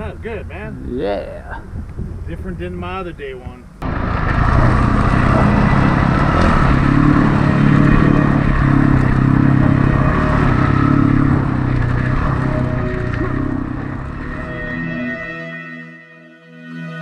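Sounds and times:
dirt bike engine running: 0:03.8 - 0:14.5.

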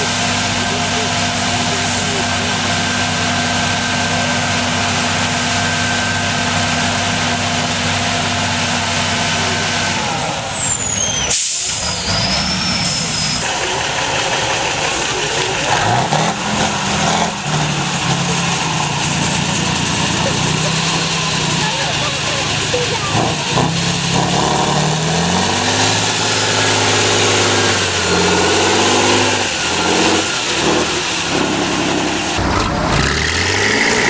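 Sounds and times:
diesel truck engine: 0:00.0 - 0:34.0
engine revving: 0:00.0 - 0:34.0
air brake hiss: 0:11.3 - 0:11.8.

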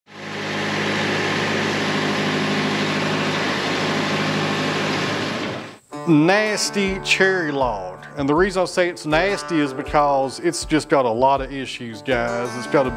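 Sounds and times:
band sawmill running: 0:00.1 - 0:05.8.

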